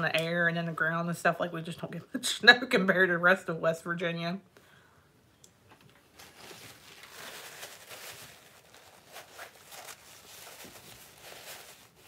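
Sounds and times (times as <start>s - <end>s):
rustling and scraping: 5.8s - 12.0s.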